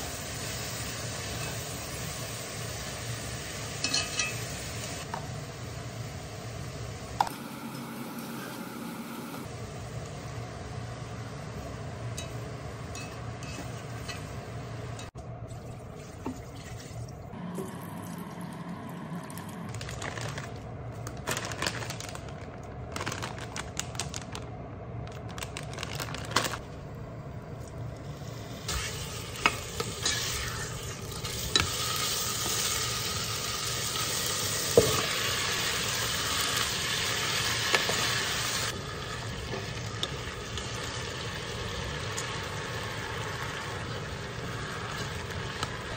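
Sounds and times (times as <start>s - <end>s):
food sizzling in a pot: 0.0s - 8.7s, 28.2s - 45.9s.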